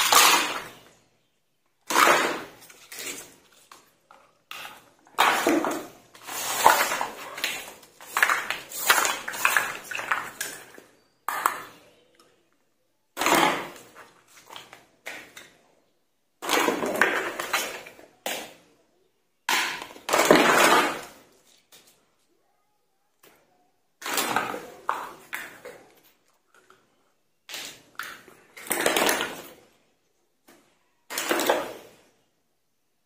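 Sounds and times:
plastic toy kitchenware clattering: 0.0s - 0.9s, 1.8s - 11.8s, 16.4s - 18.5s, 19.5s - 21.2s, 24.0s - 29.6s, 31.1s - 32.0s.

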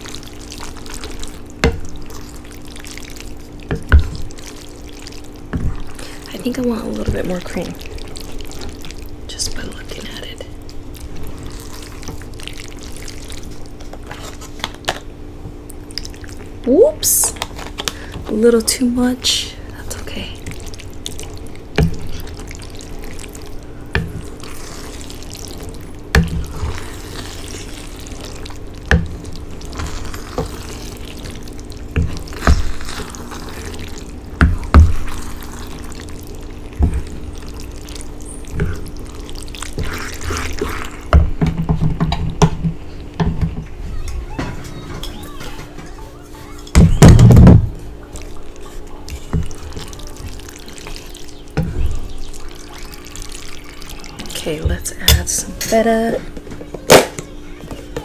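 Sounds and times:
pasta squelching in sauce: 0.0s - 16.7s, 19.6s - 41.2s, 46.4s - 54.4s
steady low hum: 0.0s - 58.0s.

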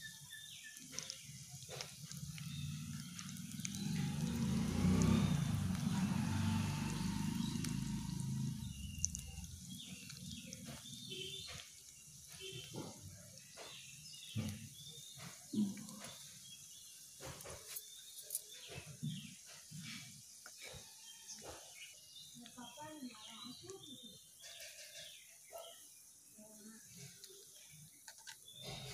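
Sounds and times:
fish sizzling in hot oil: 0.0s - 15.6s
crackles and pops of frying: 0.0s - 25.4s.

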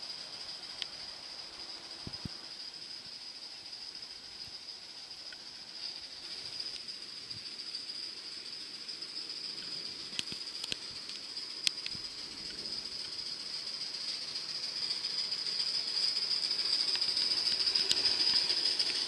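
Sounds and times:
model steam locomotive hissing: 0.0s - 19.0s
sharp clicks: 9.6s - 13.2s, 16.8s - 19.0s.

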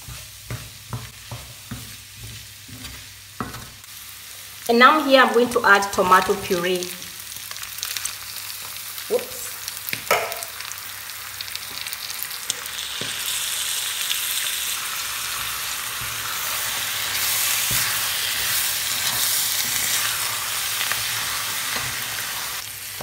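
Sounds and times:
wooden spoon stirring: 0.0s - 3.8s
sauce sizzling in a frying pan: 0.0s - 23.0s.

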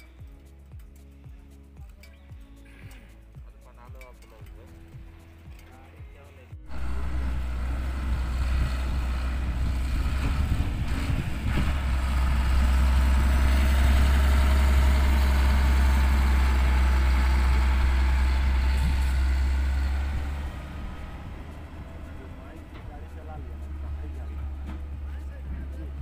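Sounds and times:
truck diesel engine droning: 6.6s - 26.0s.

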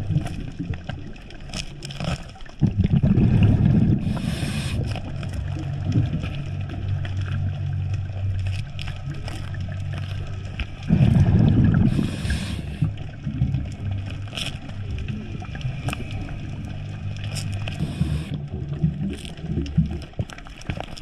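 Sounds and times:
underwater low hum: 0.0s - 21.0s
rushing bubbling burst: 2.6s - 5.0s, 10.9s - 13.8s.

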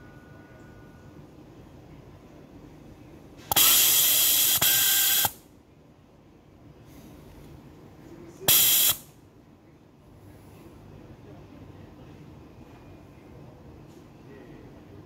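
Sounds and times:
compressed air hissing: 3.5s - 5.4s, 8.5s - 9.0s.

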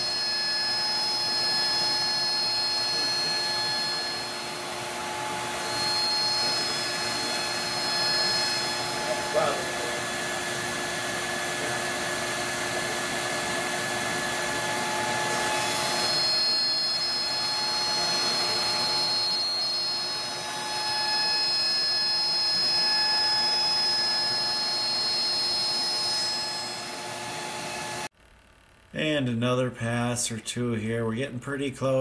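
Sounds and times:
milling cutting noise: 0.0s - 12.9s
cnc router spindle whine: 0.0s - 28.1s.

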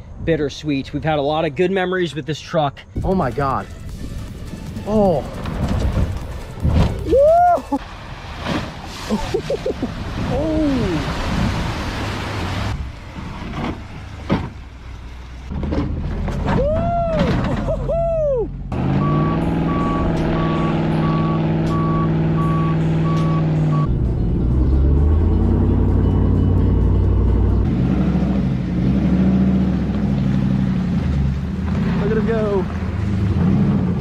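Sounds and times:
truck engine running: 3.7s - 7.0s, 18.5s - 33.3s
muddy water splashing: 4.7s - 15.3s
reversing beeper: 18.8s - 27.6s.

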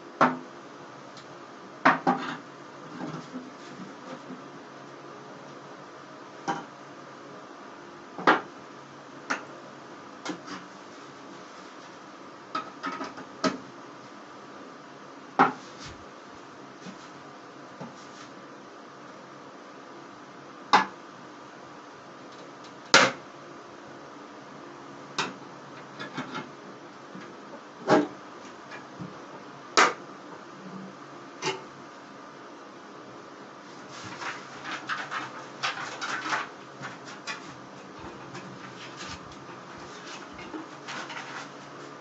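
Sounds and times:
banknotes scraping and tapping: 33.8s - 41.9s
metal box being shaken: 34.0s - 39.2s.

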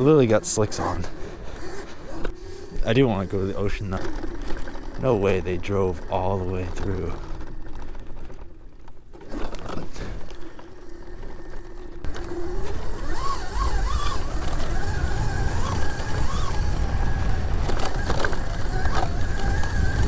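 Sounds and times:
electric dirt bike motor whine: 0.0s - 20.0s
wind rumble on microphone: 12.3s - 20.0s.

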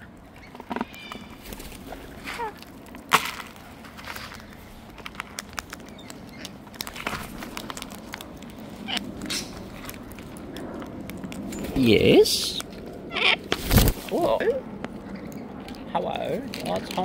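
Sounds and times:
falling bird chirp: 0.0s - 1.4s
birds cracking seeds on plastic: 0.0s - 14.2s, 16.4s - 17.0s.

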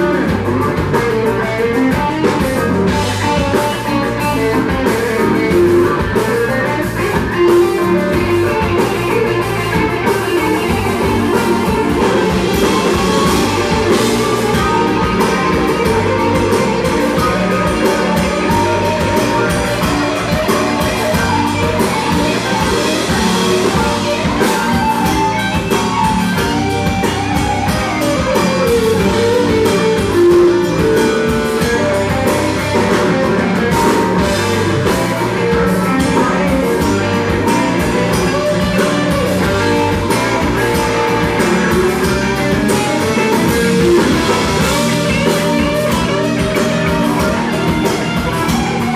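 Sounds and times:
drum kit: 0.0s - 48.9s
electric guitar: 0.0s - 48.9s
live rock band playing: 0.0s - 48.9s.

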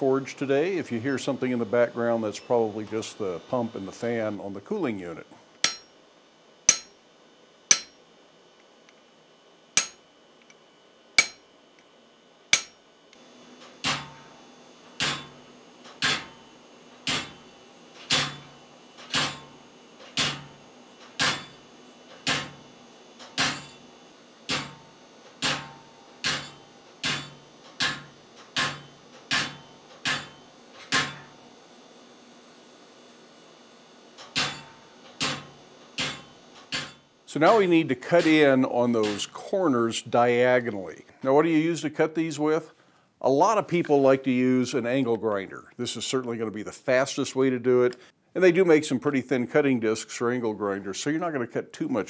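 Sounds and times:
pump and fan hum: 0.0s - 6.0s, 11.2s - 44.5s
hammer striking chisel: 5.6s - 5.9s, 6.7s - 7.0s, 7.7s - 8.0s, 9.8s - 10.0s, 11.2s - 11.4s, 12.6s - 12.8s, 25.4s - 31.3s, 34.4s - 37.6s.

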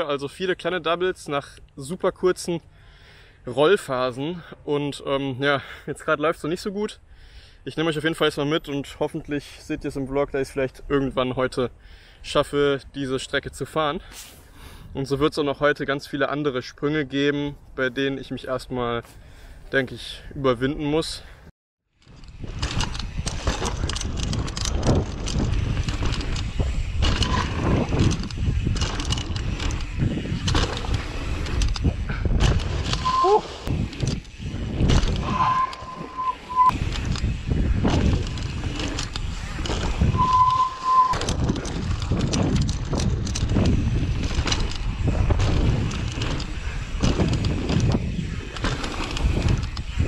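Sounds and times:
bike clicks and clacks: 22.0s - 35.9s, 36.7s - 50.0s
wind on microphone: 22.0s - 50.0s
tyres rolling over dirt and leaves: 22.1s - 35.3s, 36.8s - 40.2s, 41.2s - 50.0s
short steady beep: 33.0s - 33.4s, 35.2s - 36.8s, 40.2s - 41.2s.

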